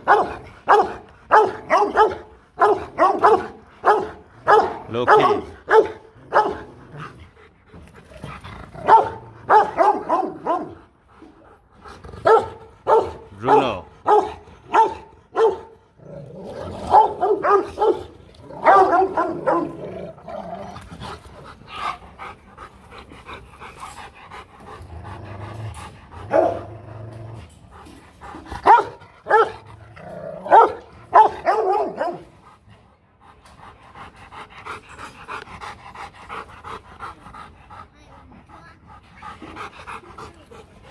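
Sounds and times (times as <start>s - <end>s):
dog barking deeply: 0.0s - 6.7s, 8.8s - 10.8s, 12.2s - 15.8s, 16.8s - 20.1s, 26.3s - 26.7s, 28.6s - 29.6s, 30.4s - 32.2s
dog panting: 0.0s - 15.9s, 20.7s - 26.7s, 27.4s - 40.9s.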